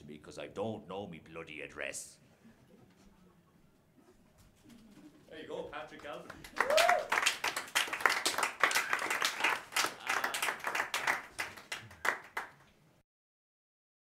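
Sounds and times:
audience applauding: 0:05.9 - 0:12.7.

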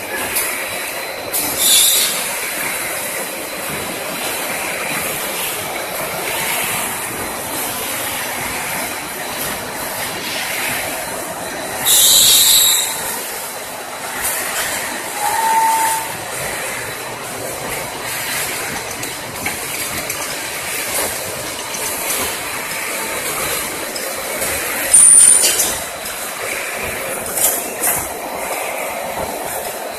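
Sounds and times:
production line machinery clatter: 0:00.0 - 0:29.9
brief high squeal: 0:01.6 - 0:02.2, 0:11.8 - 0:13.1, 0:15.1 - 0:16.2.

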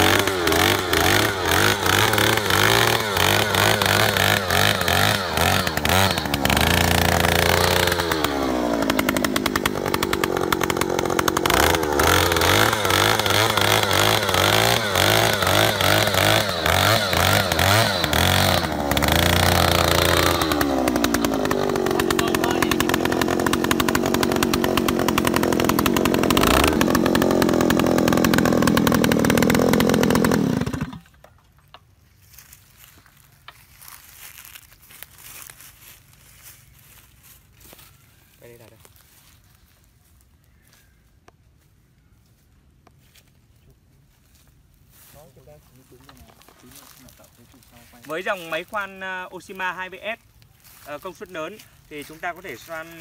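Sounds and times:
earth auger engine running: 0:00.0 - 0:31.6.

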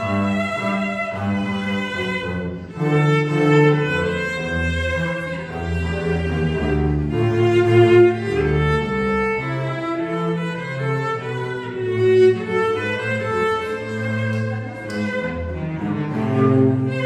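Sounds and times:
bowed cello: 0:00.0 - 0:17.0
bowed double bass: 0:00.0 - 0:17.0.

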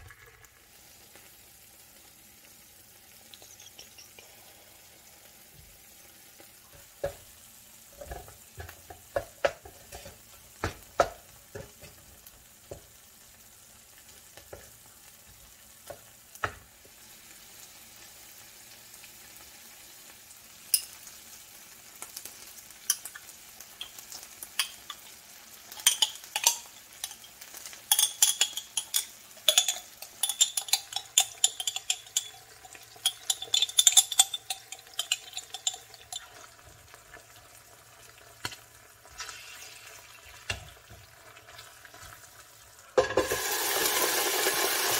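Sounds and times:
food sizzling in a pan: 0:00.0 - 0:44.9
wooden utensil tapping and stirring: 0:08.0 - 0:12.9, 0:25.7 - 0:36.9.

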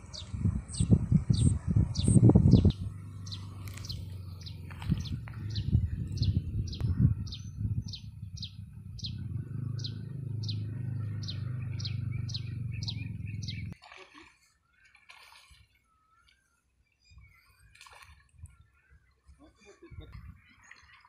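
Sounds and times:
low rumble: 0:00.0 - 0:13.8.

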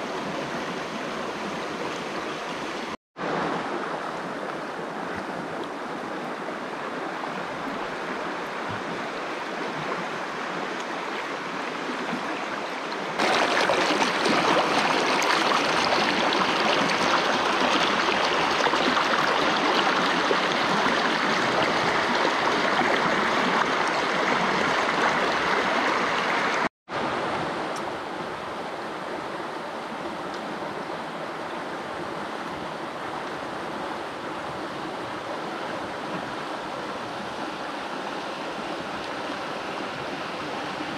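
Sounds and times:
stream of running water: 0:00.0 - 0:40.9.

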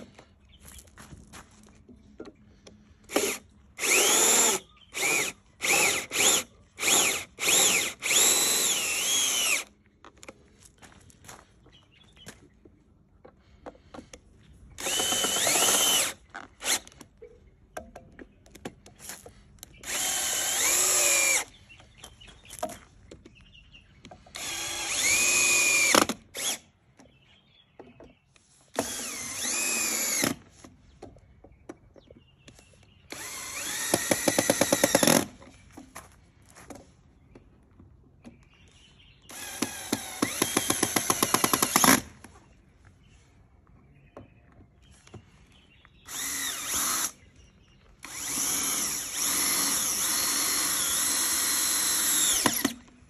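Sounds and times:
cordless drill motor whine: 0:02.6 - 0:09.7, 0:14.8 - 0:17.0, 0:19.8 - 0:21.5, 0:24.3 - 0:26.6, 0:28.8 - 0:30.4, 0:33.1 - 0:35.4, 0:39.3 - 0:42.0, 0:46.0 - 0:47.2, 0:48.0 - 0:52.9.

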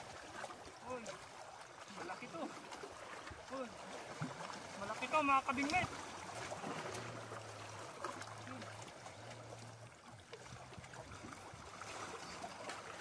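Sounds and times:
water washing against rocks: 0:00.0 - 0:09.5.

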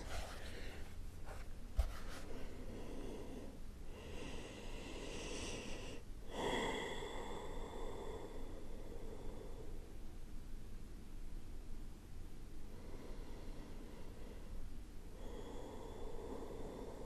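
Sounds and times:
woman breathing through nose: 0:02.4 - 0:09.9, 0:12.7 - 0:17.0.

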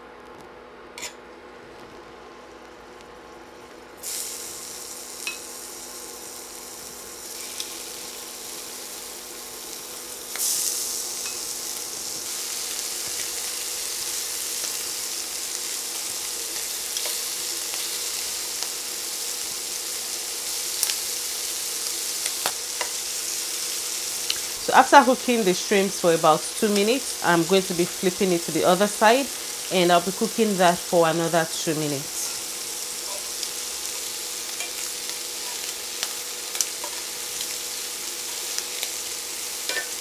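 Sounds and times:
shrimp sizzling in oil: 0:01.0 - 0:40.0.

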